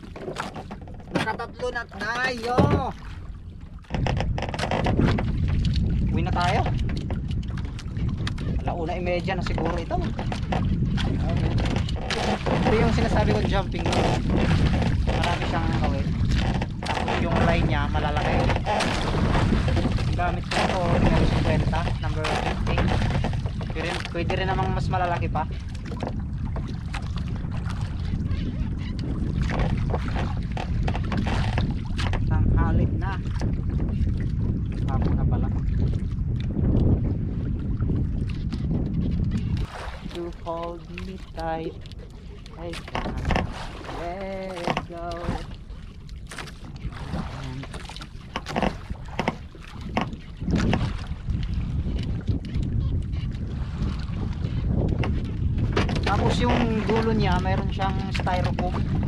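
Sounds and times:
sea water moving around boat: 0.0 - 59.0
wind rumbling on microphone: 0.0 - 59.0
splashes: 9.8 - 24.2, 39.6 - 51.2.

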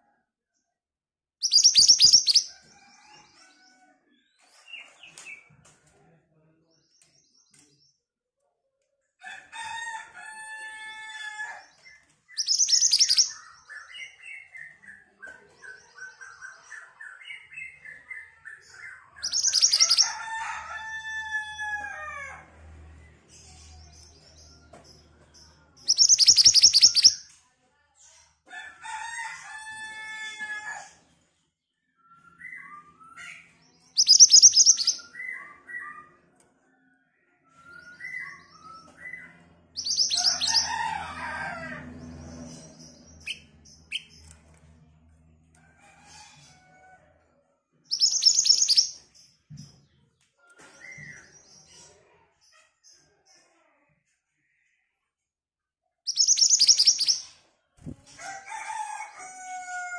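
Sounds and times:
bird trilling: 1.4 - 2.5, 12.4 - 13.4, 25.9 - 27.2, 34.0 - 35.0, 56.1 - 57.2.

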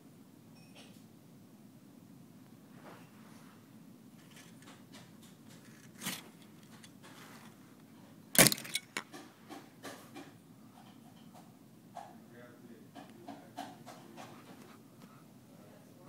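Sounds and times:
clattering clicks: 8.4 - 9.6.

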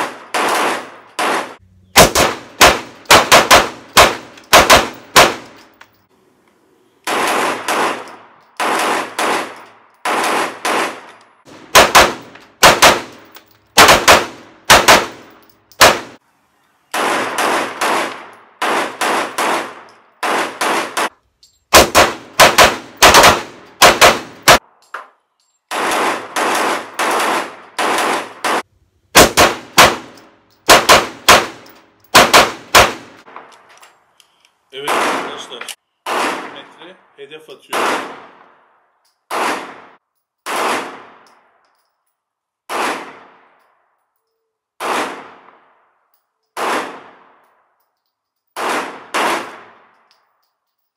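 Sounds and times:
pistol shots: 0.0 - 5.6, 7.0 - 16.2, 16.9 - 21.1, 21.7 - 24.7, 25.7 - 33.5, 34.8 - 36.6, 37.7 - 38.6, 39.3 - 41.3, 42.7 - 43.6, 44.8 - 45.8, 46.6 - 47.4, 48.6 - 49.9.

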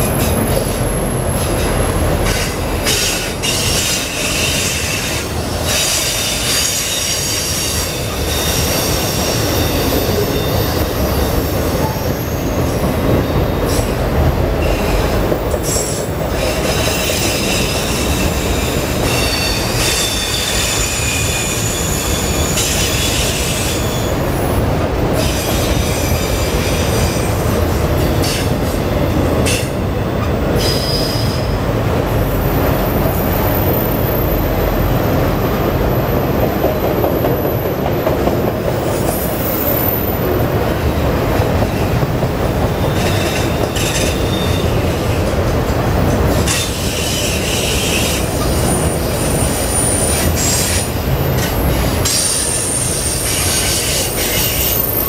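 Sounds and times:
train wheels rumbling on rails: 0.0 - 55.0
high-pitched wheel squeal: 15.7 - 24.2.

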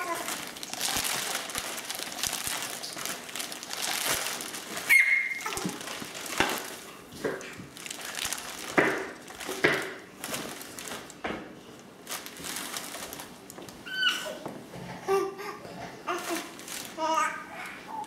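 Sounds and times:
bubble wrap crinkling: 0.0 - 14.4, 16.1 - 17.4
baby squealing: 4.9 - 5.7, 13.8 - 14.4.

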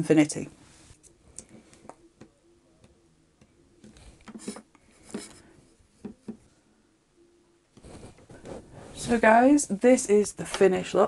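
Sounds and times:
soft rustles: 7.8 - 9.7.

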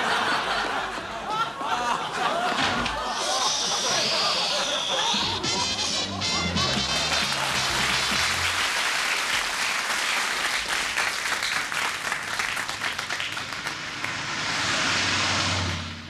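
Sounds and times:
audience applause: 4.1 - 14.5.

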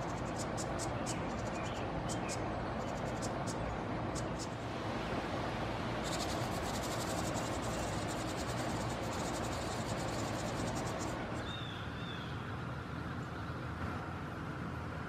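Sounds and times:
nestlings begging chirps: 0.0 - 4.6, 6.0 - 12.2.

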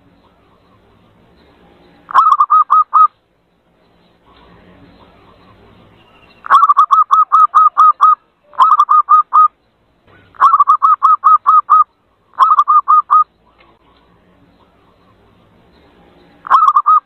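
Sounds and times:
dove cooing: 2.1 - 3.1, 6.4 - 9.5, 10.1 - 13.3, 16.4 - 17.0.

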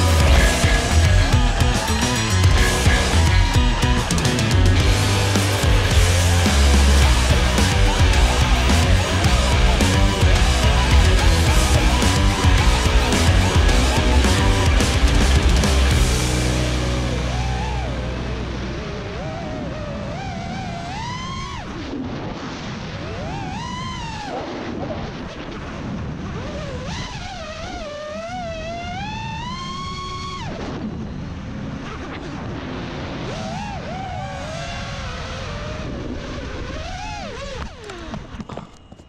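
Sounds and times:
quadcopter motors whining: 0.0 - 16.5, 33.3 - 39.0.

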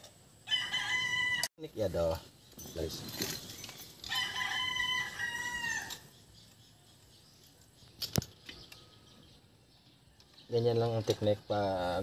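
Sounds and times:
rooster crowing: 0.4 - 1.5, 4.0 - 6.1.

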